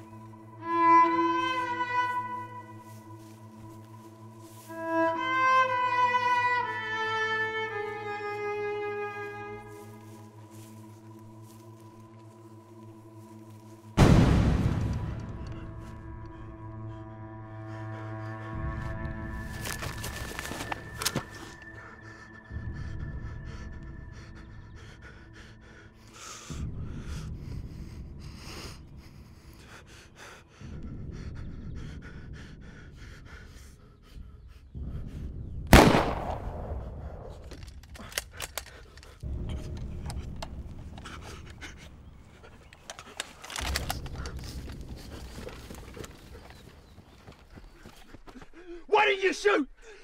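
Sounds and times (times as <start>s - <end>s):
gunshot: 14.0s - 15.2s, 35.7s - 37.0s
man breathing heavily: 15.1s - 35.6s, 36.8s - 48.9s, 49.7s - 50.0s
sharp clicks: 35.8s - 41.6s, 42.7s - 46.2s.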